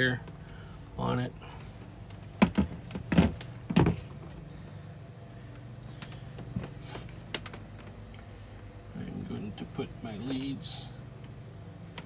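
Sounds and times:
steady low hum: 0.0 - 12.0
knocks on plastic housing: 2.4 - 4.0.

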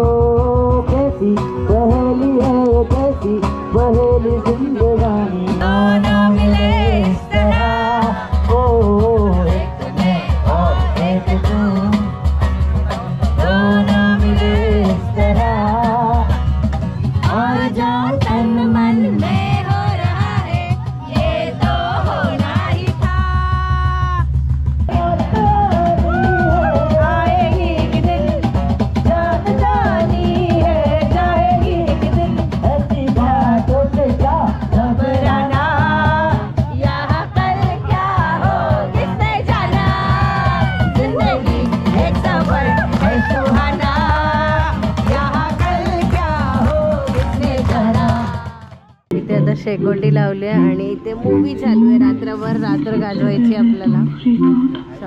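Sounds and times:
strummed acoustic guitar: 0.0 - 23.1, 24.8 - 54.2
singing over a bass beat: 0.0 - 55.0
person singing: 39.0 - 55.0.

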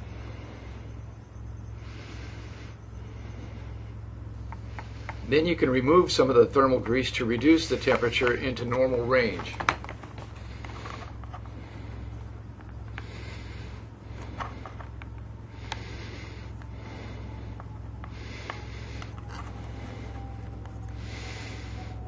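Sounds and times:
steady low hum: 0.0 - 22.0
plastic parts clicking and scraping: 7.3 - 11.5, 14.2 - 15.8, 17.6 - 20.8.

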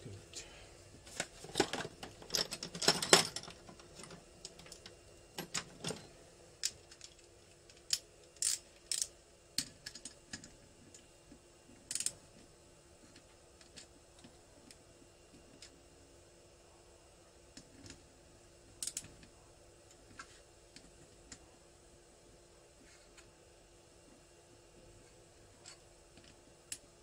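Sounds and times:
ratchet wrench clicking: 7.9 - 9.1.

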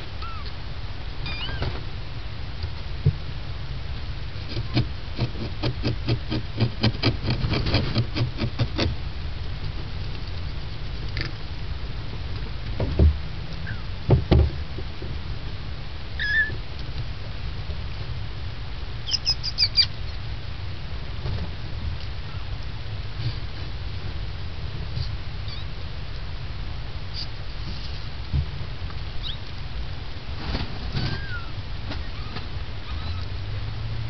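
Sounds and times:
kittens mewing: 0.0 - 0.6, 1.2 - 1.7, 16.2 - 16.6, 31.0 - 33.3
dull thumps: 14.1 - 14.9.

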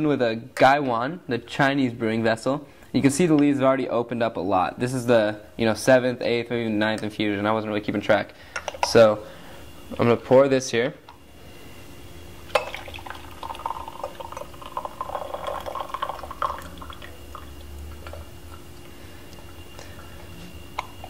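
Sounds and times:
tea pouring into glass pitcher: 12.5 - 18.7.

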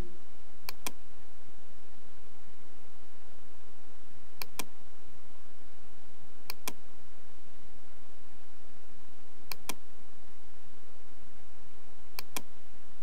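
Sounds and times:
computer mouse clicking: 0.7 - 1.0, 4.4 - 4.7, 6.5 - 6.8, 9.5 - 9.8, 12.2 - 12.5.

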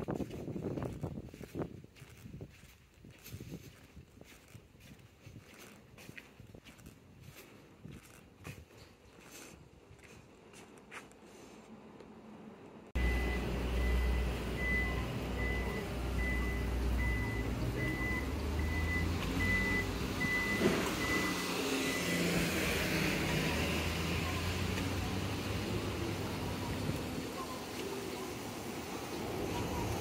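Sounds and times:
engines and traffic rumble: 0.0 - 30.0
high electronic warning beeps: 13.0 - 22.5.

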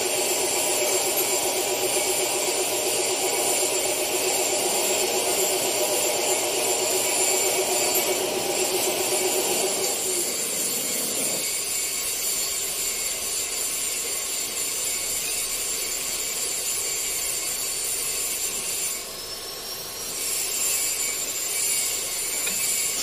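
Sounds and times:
welding torch flame hissing: 0.0 - 23.0.

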